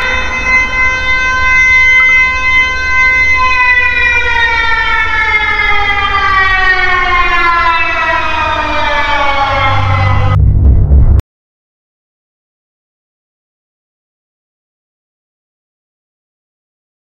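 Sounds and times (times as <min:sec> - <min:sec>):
siren winding down: 0:00.0 - 0:11.2
low rumble: 0:09.4 - 0:11.2.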